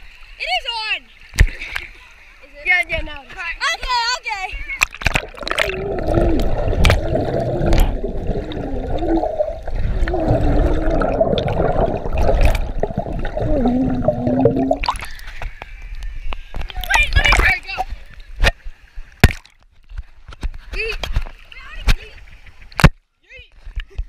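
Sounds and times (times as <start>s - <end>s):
water splashing: 0.0s - 15.8s
underwater water rumble and gurgle: 4.8s - 20.5s
muffled wavering hum: 5.3s - 15.2s.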